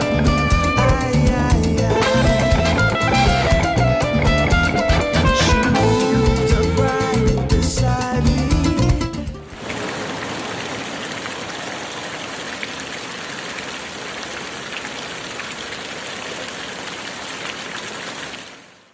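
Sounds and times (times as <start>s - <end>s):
fountain water splashing: 9.5s - 18.9s.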